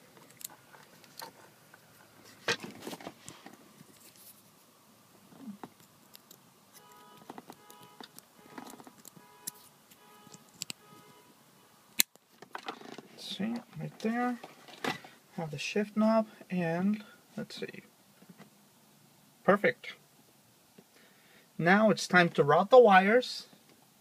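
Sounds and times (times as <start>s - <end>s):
hands handling wiring connector: 5.6s - 11.1s.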